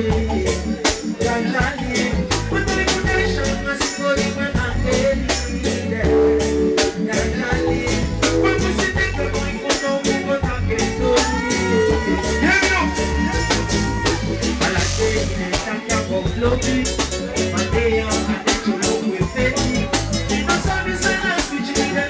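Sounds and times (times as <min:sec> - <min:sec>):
drum kit beat: 0:00.0 - 0:22.0
heavy bass line: 0:00.0 - 0:22.0
keyboard chords: 0:00.0 - 0:22.0
reggae band playing: 0:00.0 - 0:22.0.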